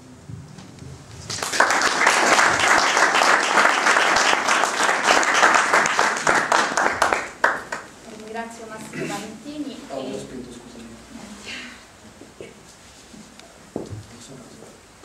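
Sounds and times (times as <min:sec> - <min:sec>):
audience applauding: 0:01.3 - 0:07.9.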